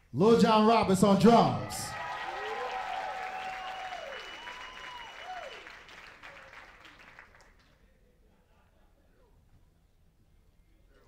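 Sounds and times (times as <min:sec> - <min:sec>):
audience applauding and cheering: 0:01.4 - 0:07.7
drawn-out whoops: 0:01.9 - 0:05.7.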